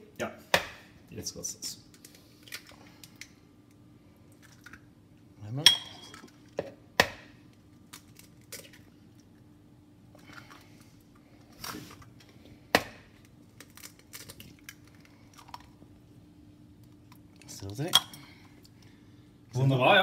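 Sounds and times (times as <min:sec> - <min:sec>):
eggs cracking against a bowl: 0:01.8 - 0:04.9, 0:05.7 - 0:09.5, 0:10.1 - 0:16.0.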